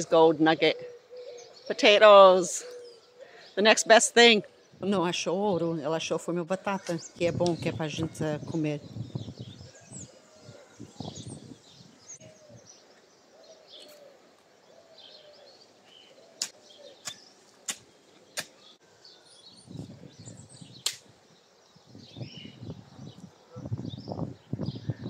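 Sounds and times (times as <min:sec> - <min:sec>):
small birds chirping: 0:00.0 - 0:25.0
hoe chopping into soil: 0:16.4 - 0:18.6.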